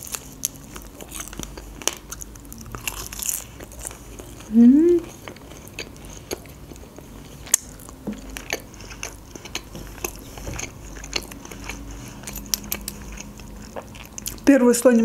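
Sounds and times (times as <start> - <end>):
wet chewing mouth clicks: 0.0 - 14.5.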